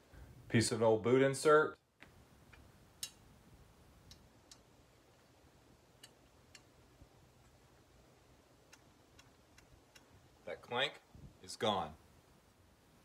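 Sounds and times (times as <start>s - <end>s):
faint ticks and light taps: 8.6s - 10.1s.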